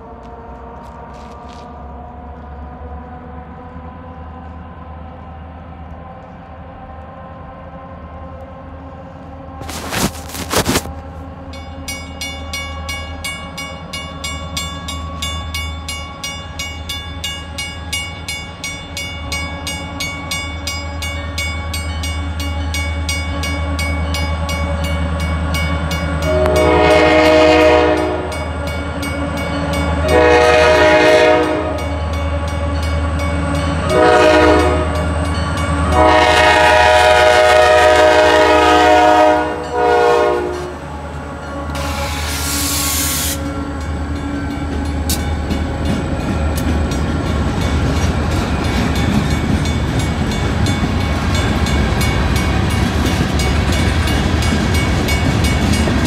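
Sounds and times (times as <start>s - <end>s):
freight train rumble: 0.0s - 56.0s
crossing bell dinging: 11.5s - 36.3s, 38.8s - 41.7s, 43.4s - 56.0s
locomotive air horn blasts: 26.2s - 28.5s, 30.0s - 31.9s, 33.9s - 35.1s, 35.9s - 43.6s.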